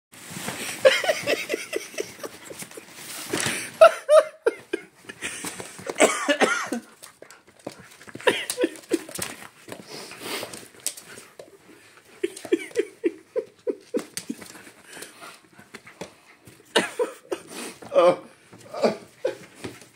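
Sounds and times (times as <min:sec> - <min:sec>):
fabric tent rustling: 0:00.1 - 0:03.8.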